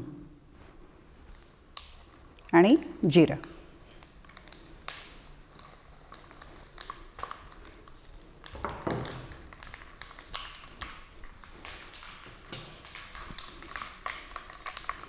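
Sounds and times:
seeds spluttering in hot oil: 3.8 - 15.0.

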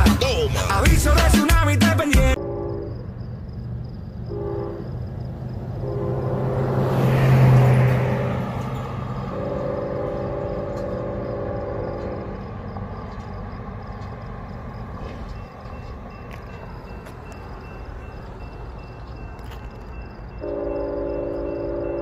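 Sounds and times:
train air horn blasts: 2.4 - 3.0, 4.3 - 5.0, 5.8 - 6.7, 9.3 - 12.4, 20.4 - 22.0
vehicle passing: 3.0 - 20.9.

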